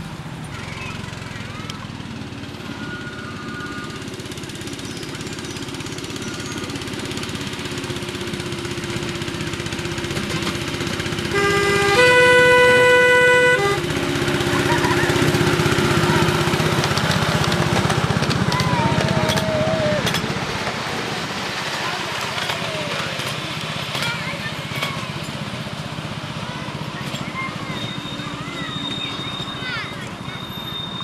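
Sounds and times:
miniature train running: 0:00.0 - 0:31.0
locomotive horn blast: 0:11.2 - 0:14.8.

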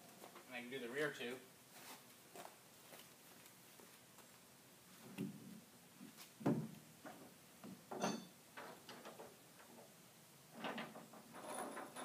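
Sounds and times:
rack hardware knocks and clatter: 0:06.4 - 0:09.9.

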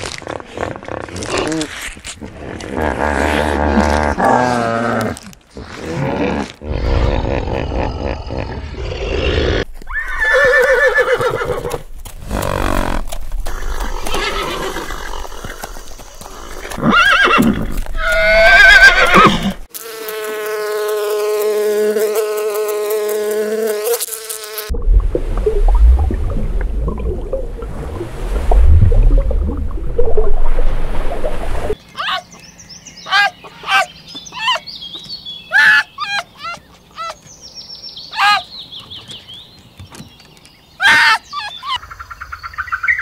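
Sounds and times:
horses neighing: 0:05.8 - 0:19.6
honeybees buzzing: 0:19.0 - 0:24.7.

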